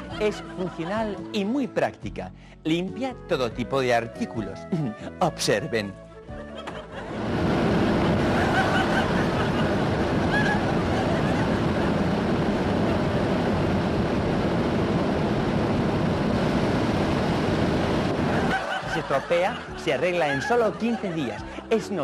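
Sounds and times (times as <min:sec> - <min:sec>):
vacuum cleaner running: 0:07.0 - 0:18.7.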